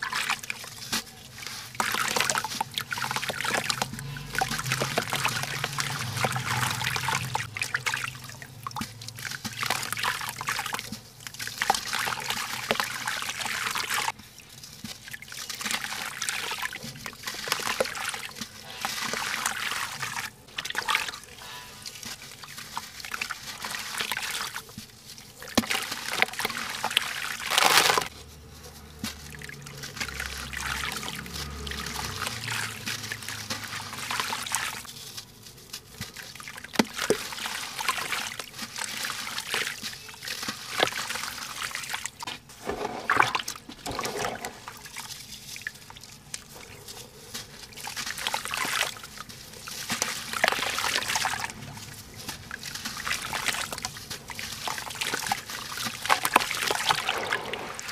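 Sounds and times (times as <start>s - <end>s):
grit pouring into water: 0.0s - 57.9s
wet lumps sloshing in water: 0.0s - 57.9s
small crackles: 21.3s - 43.0s, 43.6s - 57.9s.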